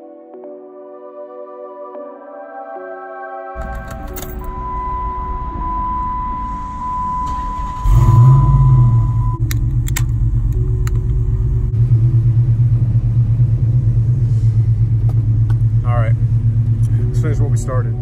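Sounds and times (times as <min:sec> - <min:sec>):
dashboard warning tone: 0:03.6 - 0:09.4
car engine starting and idling: 0:03.6 - 0:18.0.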